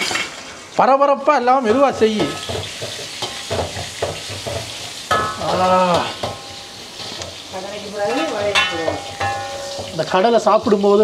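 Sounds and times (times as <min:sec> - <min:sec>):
food sizzling in hot oil: 0:00.0 - 0:11.0
metal spoon scraping pan: 0:01.7 - 0:10.2.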